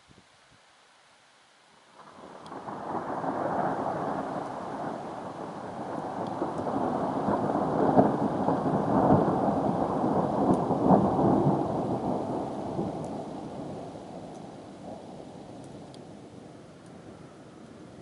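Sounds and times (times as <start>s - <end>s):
rolling thunder: 2.1s - 15.9s.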